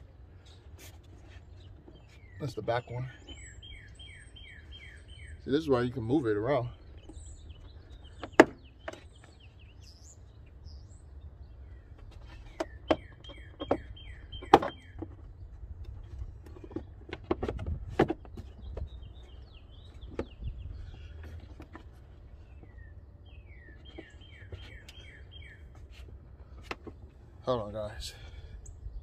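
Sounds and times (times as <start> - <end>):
birds chirping: 0.0 - 29.0.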